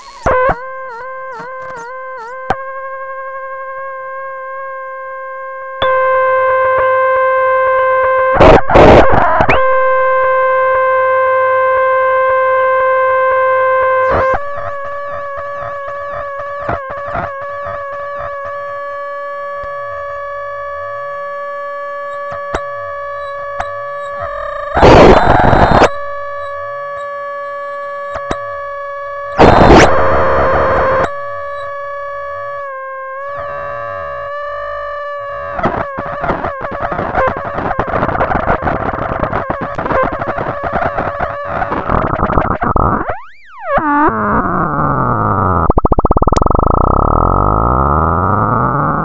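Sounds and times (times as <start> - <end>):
warbling high tones: 0.0 - 2.6, 5.8 - 7.1, 41.6 - 49.0
buzzy synthesizer drone: 0.0 - 49.0
loud noise bursts: 8.3 - 10.8, 23.6 - 27.0, 29.3 - 31.6.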